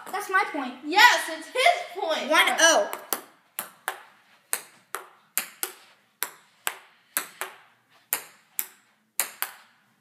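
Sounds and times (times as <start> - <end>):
table tennis ball hits: 2.8 - 10.0.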